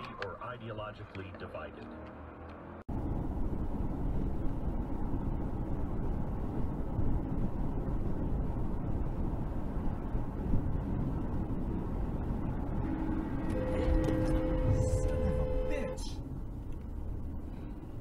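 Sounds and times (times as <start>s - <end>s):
car road and engine noise: 0.0s - 18.0s
steady tone: 2.9s - 16.3s.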